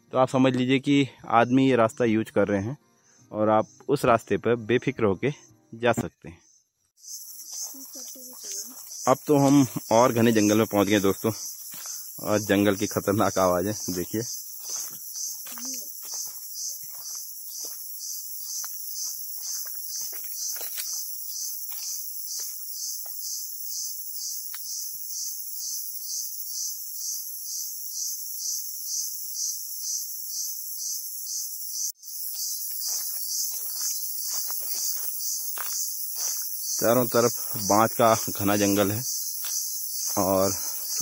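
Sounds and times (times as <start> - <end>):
crickets trilling: 0.2 - 41.0
footsteps on trail: 7.0 - 25.2, 32.0 - 41.0.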